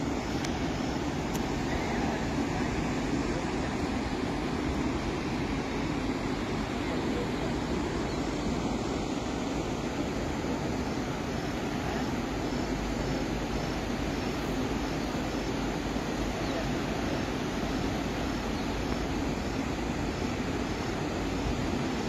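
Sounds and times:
waterfall roaring: 0:00.0 - 0:22.0.

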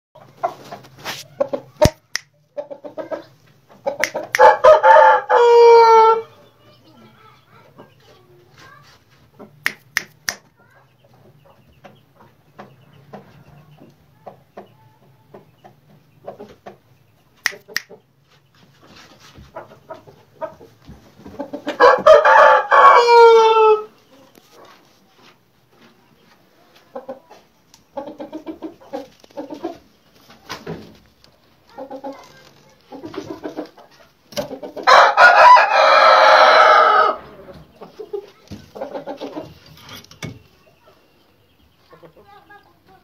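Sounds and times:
soft clucking: 0:00.2 - 0:04.8, 0:06.5 - 0:21.9, 0:24.0 - 0:35.0, 0:37.2 - 0:43.0
rooster crowing: 0:04.4 - 0:06.3, 0:21.8 - 0:23.9, 0:34.9 - 0:37.5
sharp clicks: 0:09.7 - 0:10.5, 0:17.5 - 0:18.0.

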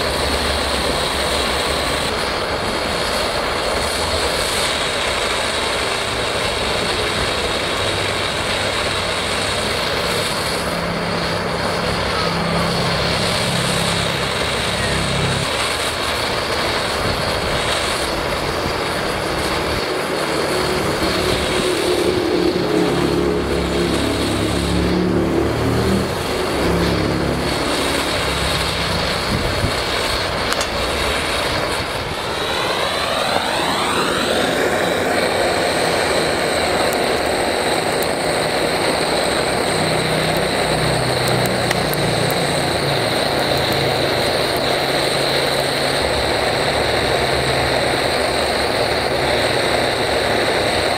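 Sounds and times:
blowtorch roaring: 0:00.0 - 0:50.9
rising swish: 0:10.1 - 0:15.9, 0:17.8 - 0:39.2.

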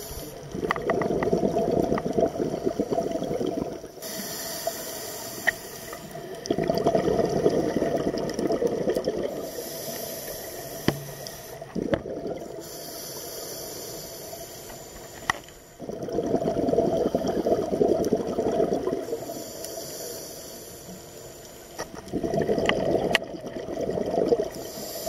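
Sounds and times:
regulator hiss on inhale: 0:00.0 - 0:00.6, 0:03.9 - 0:06.3, 0:09.3 - 0:11.8, 0:12.5 - 0:15.8, 0:19.0 - 0:22.0, 0:24.5 - 0:25.0.

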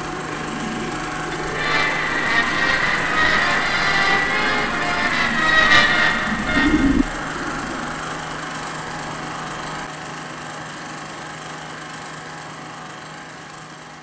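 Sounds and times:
machine-like droning hum: 0:00.0 - 0:09.9.

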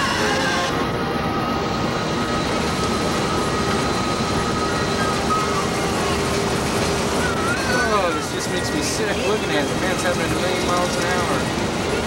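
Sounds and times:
road and wind noise inside vehicle: 0:00.0 - 0:12.0.

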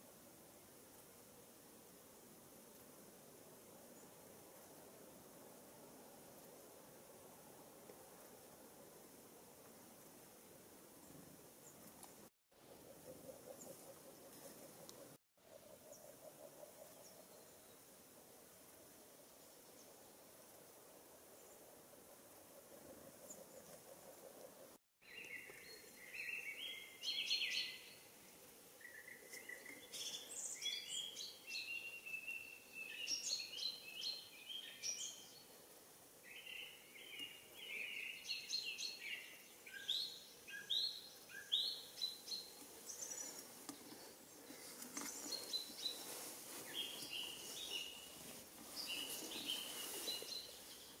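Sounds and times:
songbirds chirping: 0:09.6 - 0:18.1, 0:18.7 - 0:51.0.

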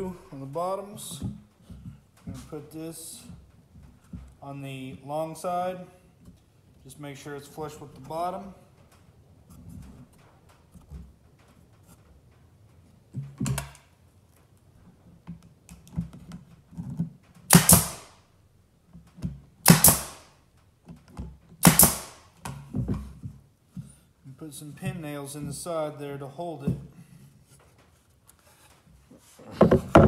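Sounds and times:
pneumatic nailer firing: 0:17.5 - 0:18.2, 0:19.6 - 0:20.3, 0:21.6 - 0:22.3
wood being handled knock: 0:29.6 - 0:30.0.

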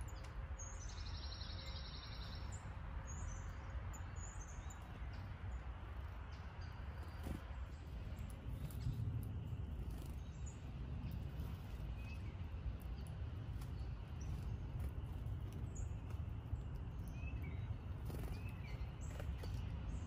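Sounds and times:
songbird chirps: 0:00.0 - 0:20.0.

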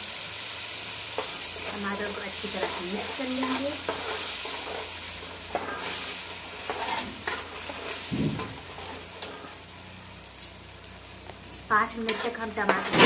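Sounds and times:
gravy sizzling: 0:00.0 - 0:13.0
spoon scraping a metal pan: 0:02.4 - 0:09.6, 0:12.0 - 0:13.0
low thump: 0:08.1 - 0:08.6.

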